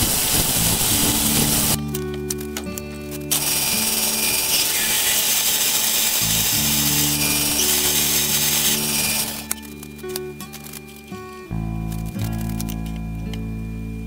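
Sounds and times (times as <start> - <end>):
drill boring into metal: 0.0 - 1.8, 3.3 - 9.6.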